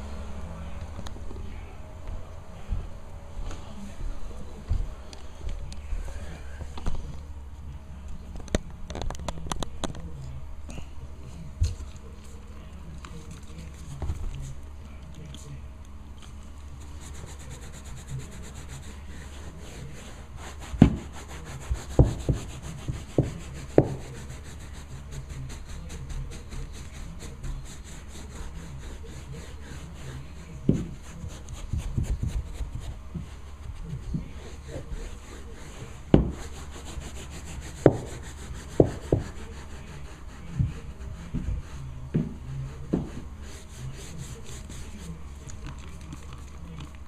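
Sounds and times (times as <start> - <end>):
brush scrubbing carpet: 16.6 - 47.0
brush knocking on step: 20.7 - 24.2, 36.1 - 39.5.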